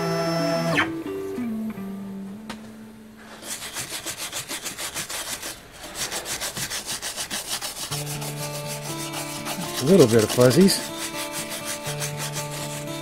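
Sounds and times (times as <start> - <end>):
stiff brush sweeping wood: 3.3 - 13.0.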